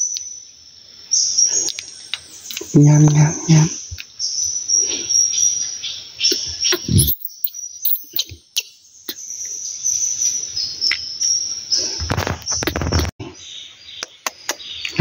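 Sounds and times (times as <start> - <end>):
insect chirring: 0.0 - 12.9.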